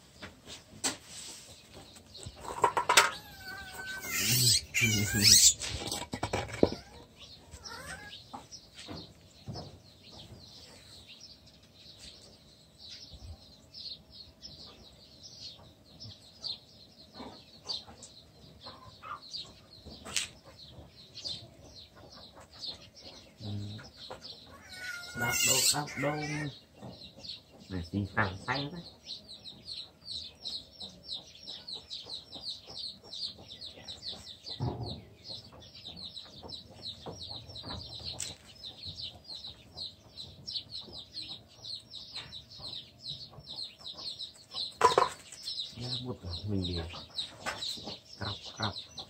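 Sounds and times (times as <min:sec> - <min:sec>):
baby monkey squealing: 0:03.1 - 0:05.7, 0:24.6 - 0:26.4.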